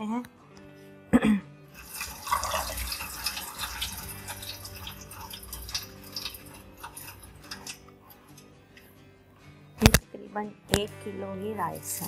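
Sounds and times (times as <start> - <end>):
stock boiling in a wok: 1.8 - 7.8.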